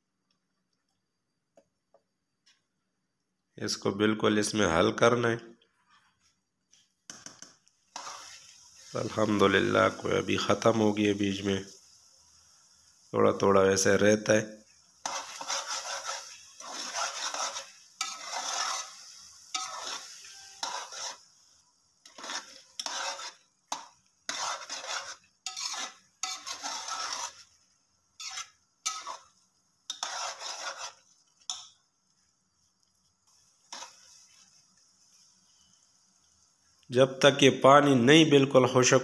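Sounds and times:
metal spatula scraping a pot: 7.3s - 11.8s, 14.3s - 31.8s, 32.8s - 35.8s.

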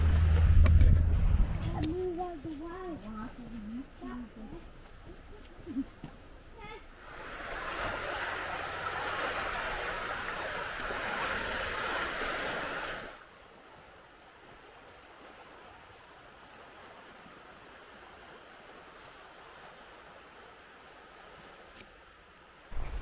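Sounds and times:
sea water washing against rocks: 6.6s - 21.8s.

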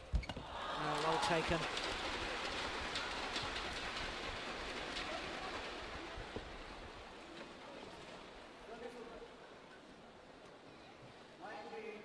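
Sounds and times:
crowd applauding and cheering: 0.4s - 5.0s.

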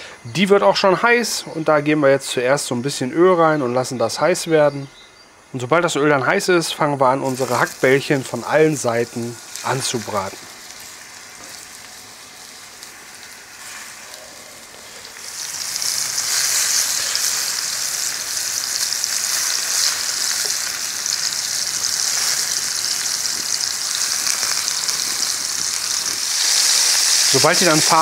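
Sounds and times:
meatballs sizzling in hot oil: 7.2s - 28.0s.

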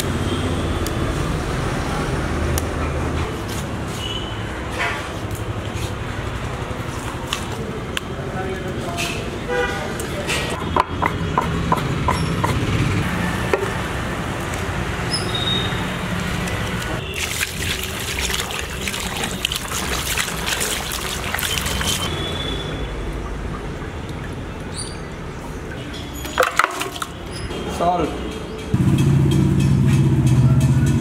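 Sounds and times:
running water splashing: 16.0s - 22.1s, 26.4s - 27.3s.

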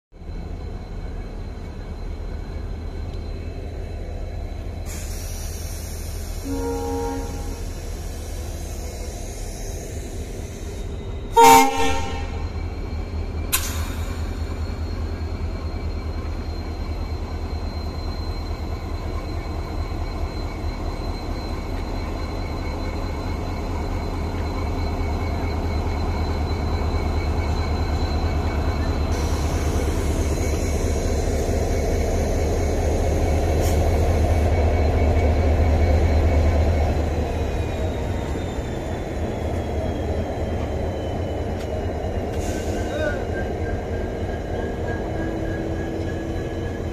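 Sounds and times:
diesel locomotive rumbling: 0.1s - 46.9s
train horn: 6.4s - 7.7s, 11.3s - 12.4s.

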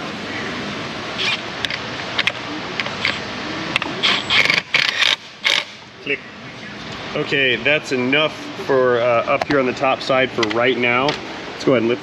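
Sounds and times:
steady background hiss: 0.0s - 12.0s
cordless power tool bursts: 4.0s - 5.8s.

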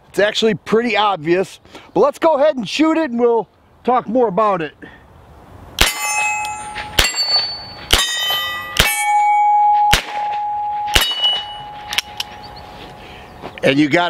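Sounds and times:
steel plate target ringing: 5.8s - 12.6s.

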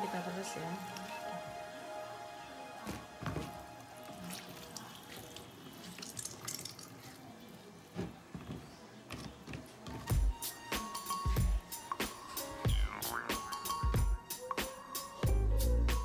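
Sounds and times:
wet squelches of squeezed leaves: 2.8s - 7.4s
water dripping into colander: 3.3s - 7.4s.

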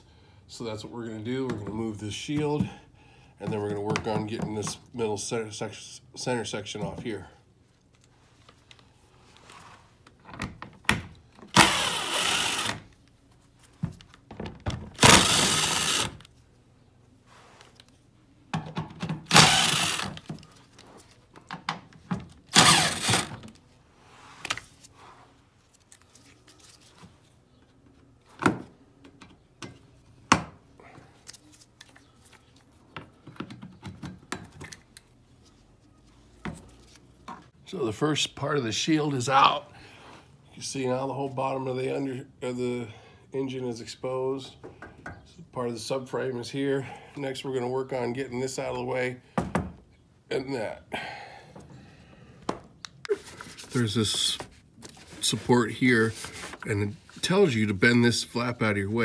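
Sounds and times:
power driver spinning out screws: 11.6s - 12.8s, 15.0s - 16.2s, 19.3s - 20.2s, 22.5s - 23.4s.

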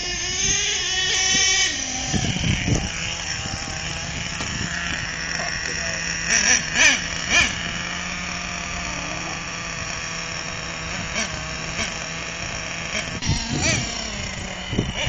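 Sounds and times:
engine revving blips: 0.0s - 15.0s
small model engine idling: 0.0s - 15.0s.

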